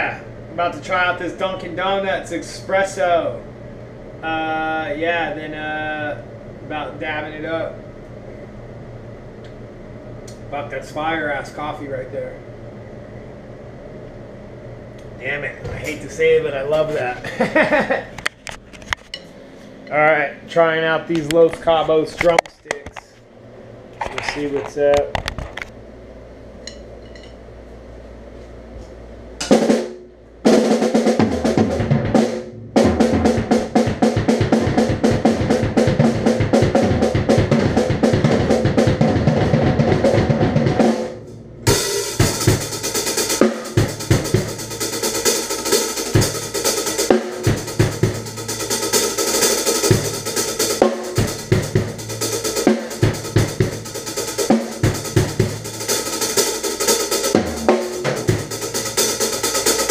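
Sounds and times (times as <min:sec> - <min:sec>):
drum kit beat: 0:29.4 - 0:59.9
rapid drumstick strokes: 0:41.7 - 0:59.9.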